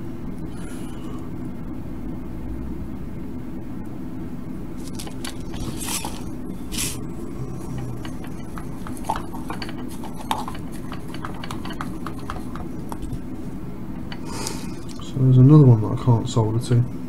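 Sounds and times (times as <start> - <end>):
steady low hum: 0.0 - 17.0
short hisses: 14.2 - 14.8.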